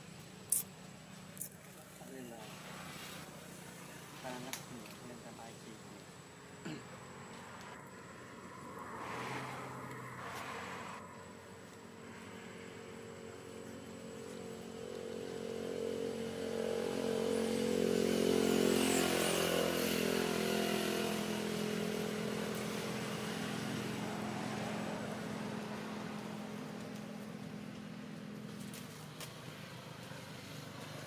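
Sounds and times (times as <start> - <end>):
vehicle engine passing by: 6.9 - 31.0.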